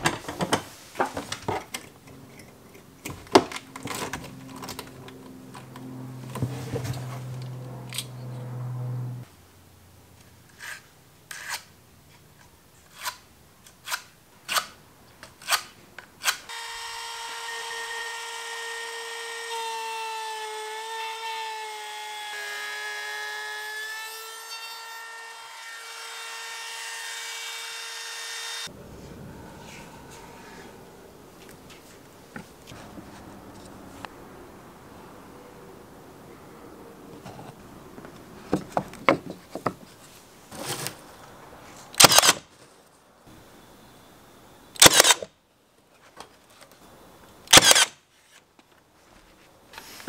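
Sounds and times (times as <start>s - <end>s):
low steady hum: 0.0s - 10.5s, 28.7s - 39.2s
router high whine: 16.5s - 21.7s.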